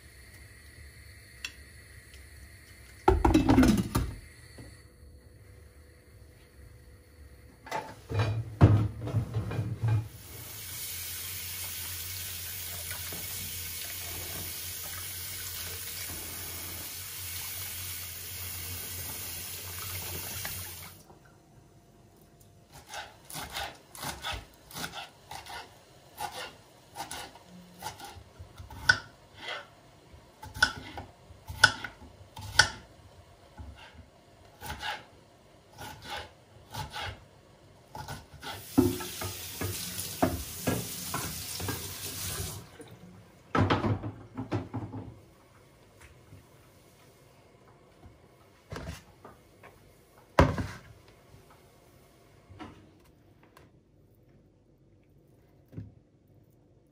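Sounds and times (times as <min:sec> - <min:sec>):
knife chopping on wooden board: 0:30.4 - 0:32.8.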